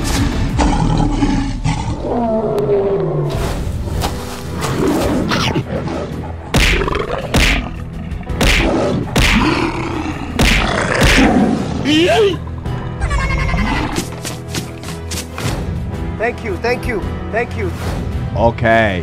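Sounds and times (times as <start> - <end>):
dramatic background music: 0.0 - 19.0
big cat roaring and snarling: 0.2 - 3.7, 4.5 - 12.7.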